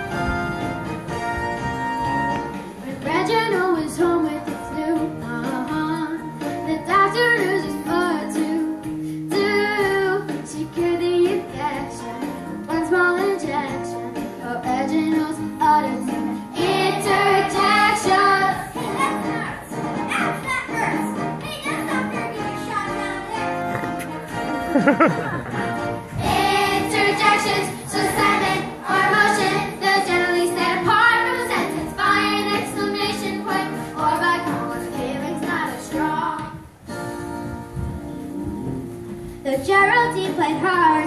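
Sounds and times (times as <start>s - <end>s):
backing music: 0.0s - 41.0s
girl singing into a microphone: 2.8s - 19.6s, 26.2s - 36.8s, 39.2s - 41.0s.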